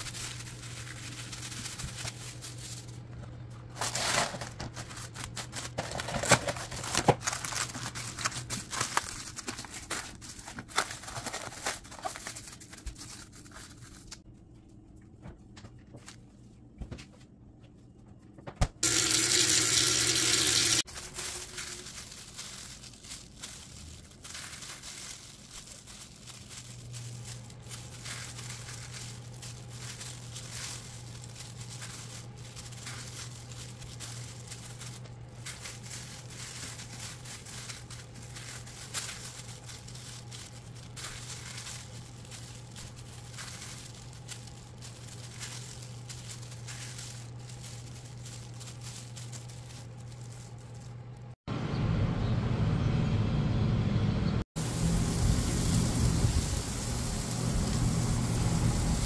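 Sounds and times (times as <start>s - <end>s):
plastic gloves crinkling: 0.0s - 14.9s, 18.8s - 51.4s, 54.6s - 59.0s
steady low hum: 20.0s - 59.0s
rushing noise with buzz: 54.6s - 59.0s.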